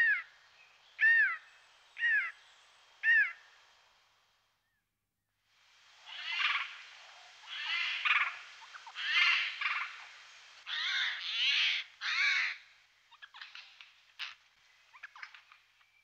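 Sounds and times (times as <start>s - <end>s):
faint ticks: 13.3s - 16.0s.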